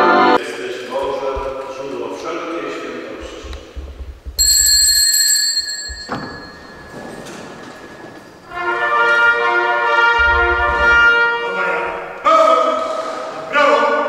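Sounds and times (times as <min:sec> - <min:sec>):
held brass chord: 0:08.4 - 0:12.2.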